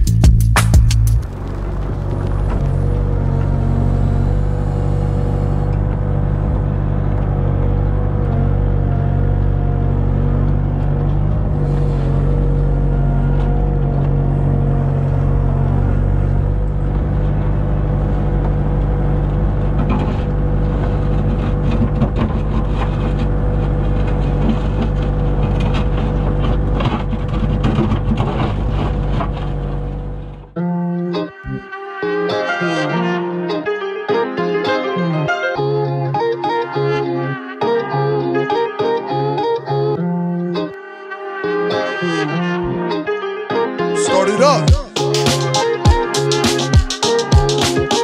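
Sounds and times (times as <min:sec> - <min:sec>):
diesel engine running: 0:00.1 - 0:30.8
bucket knocking and scraping gravel: 0:01.2 - 0:03.6.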